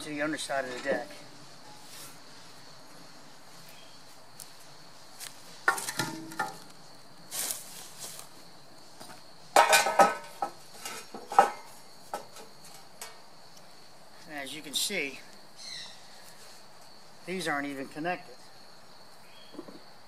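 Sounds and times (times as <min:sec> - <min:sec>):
blocks and metal clanking: 0:05.7 - 0:06.6, 0:09.6 - 0:12.3
high-pitched insect chirr: 0:13.3 - 0:20.0.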